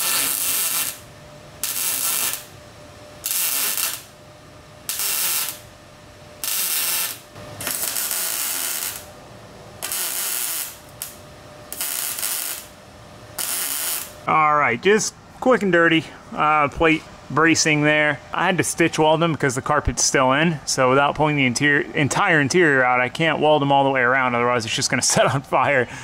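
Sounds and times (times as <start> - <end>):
welding arc crackling: 0.0 - 2.6, 3.2 - 4.2, 4.8 - 5.7, 6.4 - 9.2, 9.8 - 12.8, 13.4 - 14.3.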